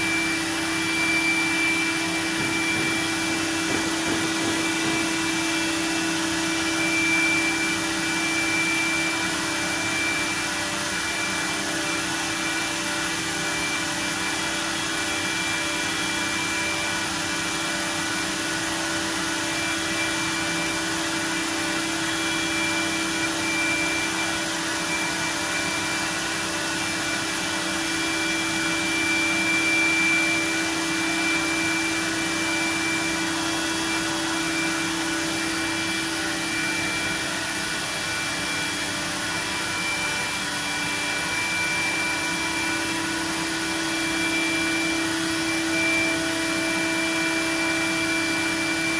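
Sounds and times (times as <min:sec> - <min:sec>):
high machine whine: 0:00.0 - 0:48.9
router machine humming: 0:00.0 - 0:48.9.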